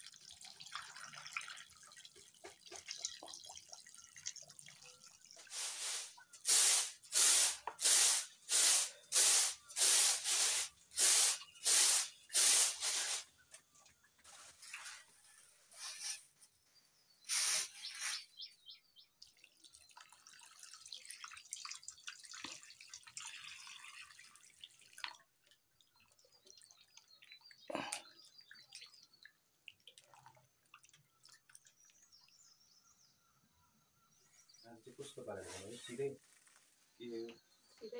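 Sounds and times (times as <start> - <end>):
water pouring and splashing: 0.0 - 15.2, 19.2 - 32.5.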